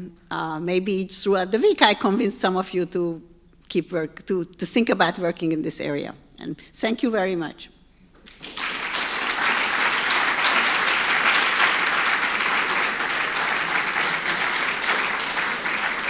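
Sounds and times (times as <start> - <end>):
audience applauding: 8.2 - 16.0.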